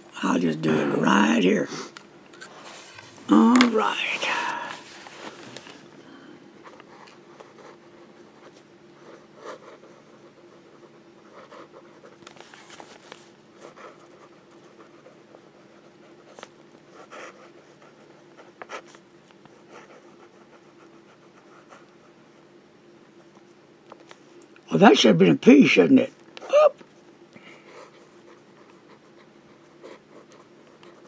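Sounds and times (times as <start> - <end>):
faint steady hum: 0.0 - 31.0
pen nib scratching on paper: 6.7 - 12.6, 13.6 - 22.4, 27.7 - 31.0.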